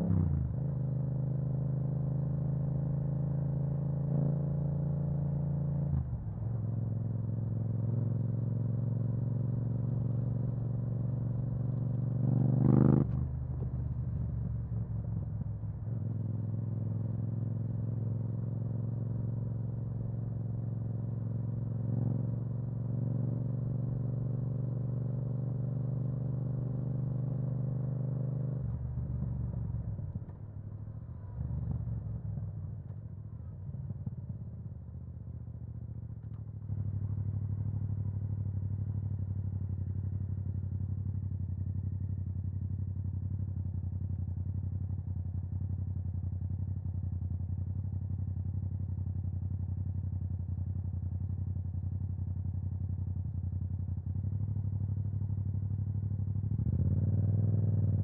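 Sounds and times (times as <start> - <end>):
motorcycle engine revving: 9.0 - 13.4, 56.5 - 58.0.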